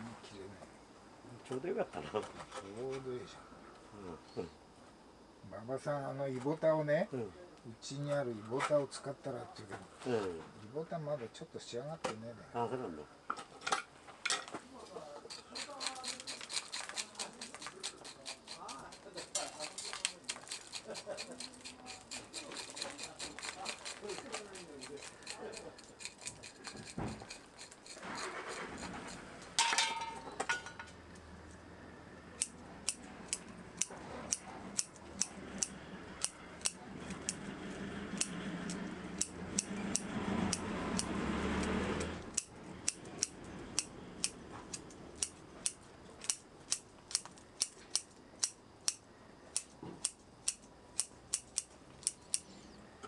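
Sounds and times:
rustling: 13.4 - 31.6
scissors snipping roots: 15.3 - 28.0.

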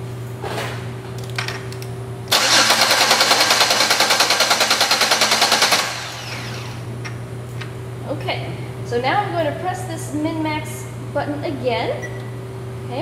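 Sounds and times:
starter motor cranking engine: 2.3 - 6.8.

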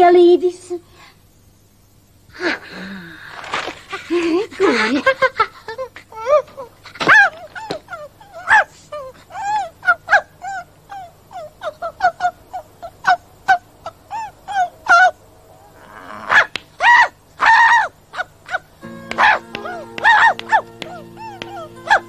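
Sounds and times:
small dog yapping: 7.0 - 8.8, 9.4 - 12.3, 15.8 - 22.0.

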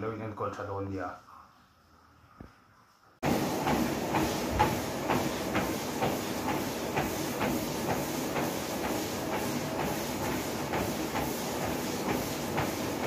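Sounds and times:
footsteps on treadmill: 3.2 - 13.0
treadmill belt and motor whir: 3.2 - 13.0.

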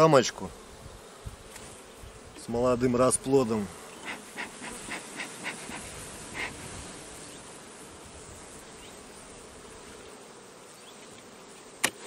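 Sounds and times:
bees buzzing: 0.0 - 12.0
bellows smoker puff: 4.0 - 6.8.

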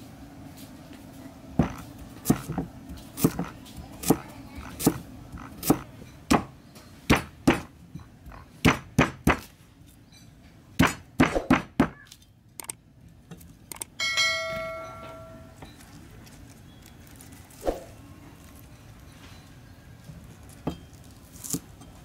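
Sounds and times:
cleaver chopping on wooden block: 1.6 - 9.5, 10.8 - 12.0
bell-like chime: 14.0 - 15.8.

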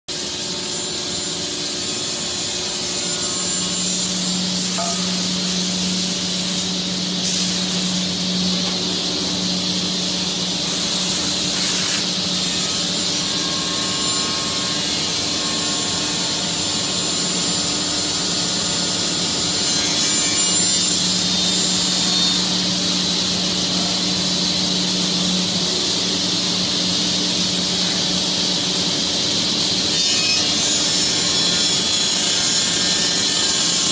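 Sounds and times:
router spindle high whine: 0.6 - 26.1.

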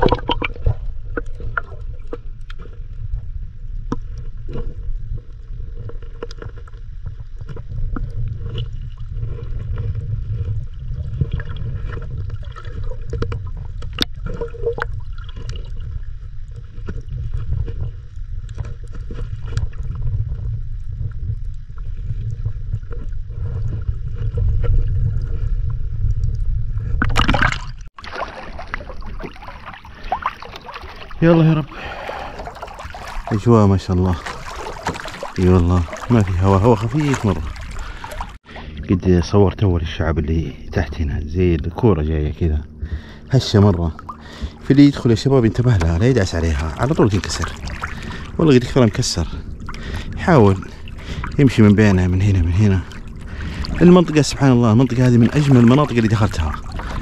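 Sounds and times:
rush of water: 0.0 - 3.1, 27.0 - 38.8, 43.3 - 57.0
faint clicks and crackles: 0.0 - 27.9
underwater rumble of moving water: 0.0 - 57.0.

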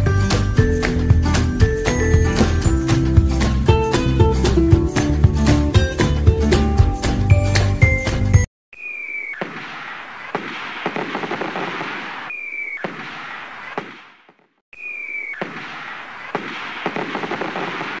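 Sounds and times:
firework burst crackling and popping: 9.4 - 14.0, 15.4 - 18.0.

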